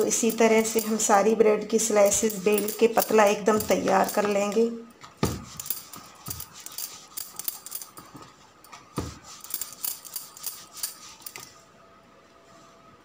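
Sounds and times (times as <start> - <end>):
rolling pin rolling on bread: 8.2 - 9.8.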